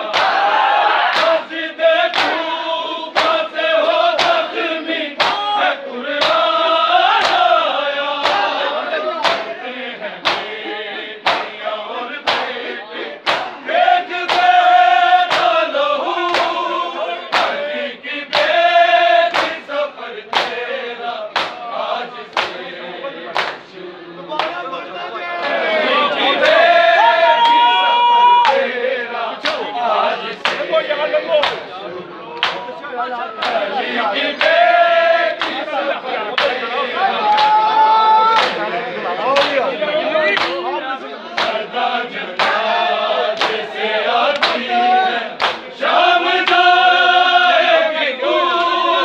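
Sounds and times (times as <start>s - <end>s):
crowd of men chanting: 0.0s - 49.0s
hands striking bare chests: 10.2s - 10.5s.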